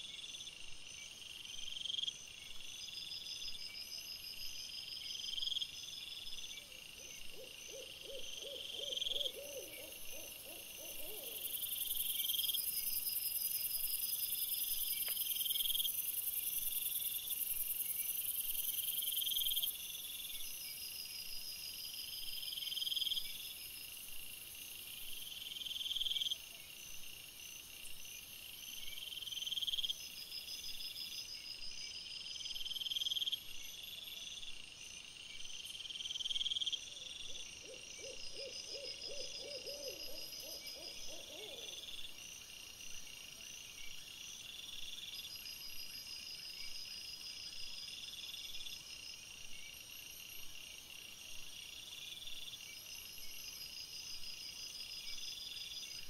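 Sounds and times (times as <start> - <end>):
owl hooting: 7.3 - 11.5, 37.6 - 41.8.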